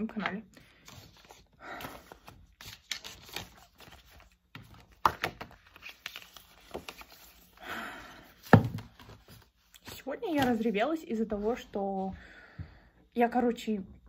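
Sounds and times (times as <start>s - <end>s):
paper leaflets rustling: 0.7s - 7.6s.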